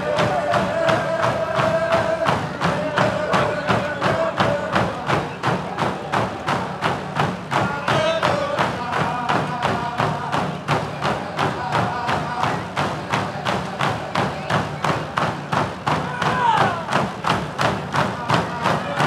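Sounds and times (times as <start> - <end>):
group of voices singing: 0.0 - 15.0
hand drums beating: 0.0 - 19.0.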